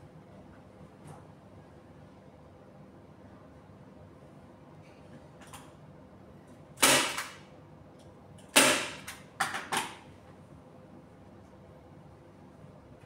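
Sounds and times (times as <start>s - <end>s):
staple gun firing sharp snaps: 6.8s - 7.4s, 8.5s - 9.9s.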